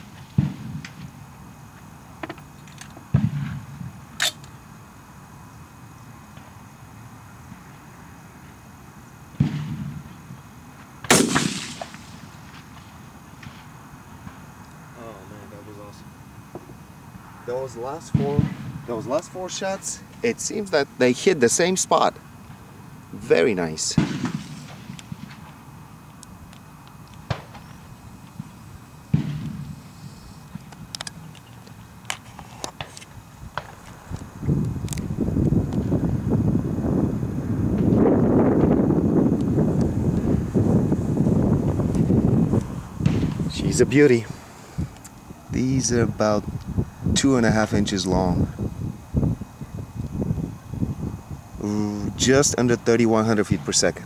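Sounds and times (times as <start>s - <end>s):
rifle shots with rolling echo: 0.0s - 1.1s, 3.1s - 4.4s, 9.4s - 10.4s, 11.0s - 14.3s, 18.0s - 19.8s, 23.8s - 25.6s, 28.4s - 29.8s
short sharp crack: 11.1s - 12.6s.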